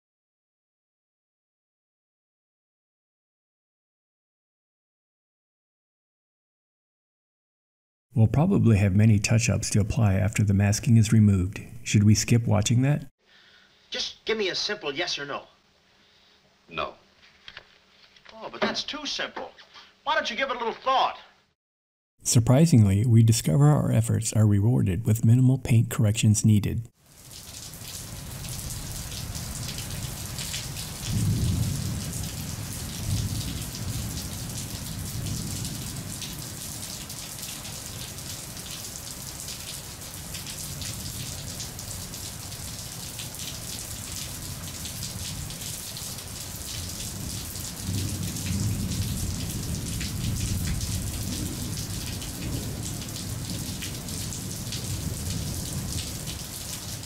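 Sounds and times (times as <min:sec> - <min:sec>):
steady rain: 0:27.0 - 0:57.0
rolls of thunder: 0:31.0 - 0:36.5, 0:47.2 - 0:56.1.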